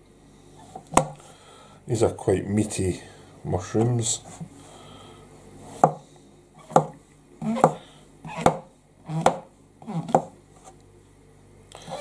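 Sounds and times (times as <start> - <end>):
knife slicing mushrooms: 6.6 - 7.8.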